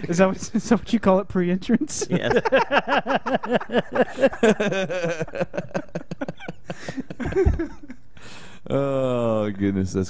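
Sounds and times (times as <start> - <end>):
men laughing: 1.8 - 8.1.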